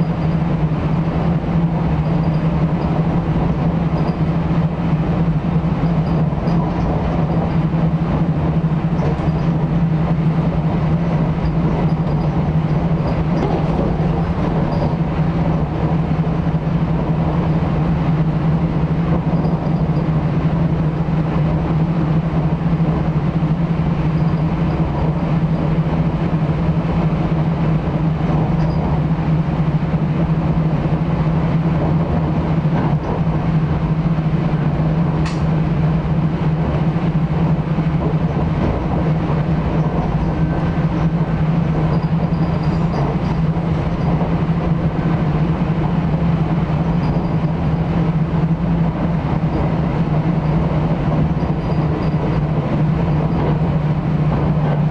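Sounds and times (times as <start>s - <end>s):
train rumble and low hum: 0.0s - 54.9s
sharp click: 35.2s - 35.5s.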